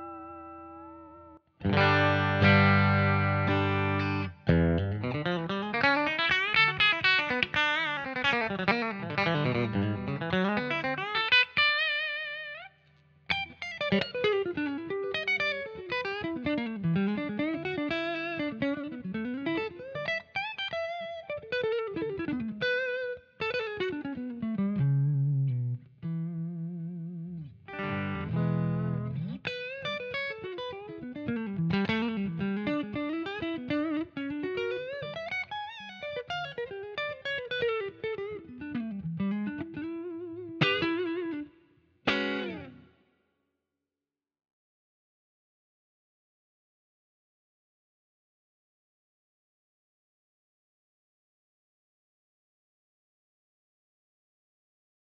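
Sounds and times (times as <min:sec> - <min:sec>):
electric guitar melodic runs: 0:00.0 - 0:12.4, 0:13.3 - 0:41.5, 0:42.1 - 0:42.9.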